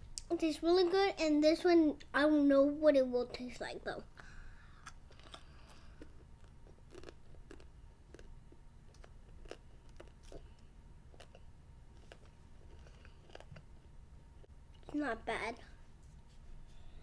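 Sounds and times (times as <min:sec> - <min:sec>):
child chewing candy: 0:04.2 - 0:15.0.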